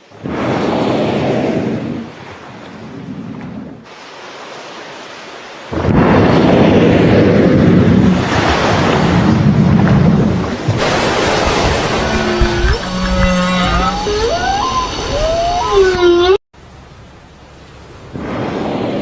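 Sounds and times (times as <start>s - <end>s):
ocean wind and surf: 0.0s - 19.0s.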